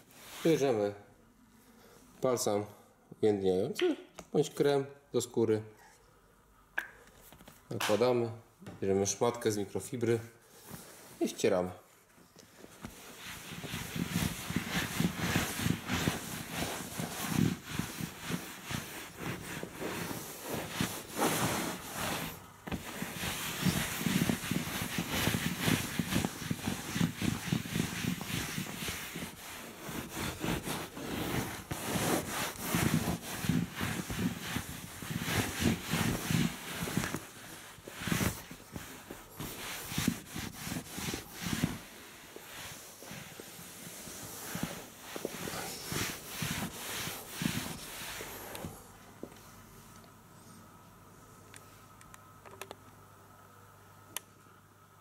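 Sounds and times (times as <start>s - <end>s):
cloth rubbing leather upholstery: 12.6s - 48.9s.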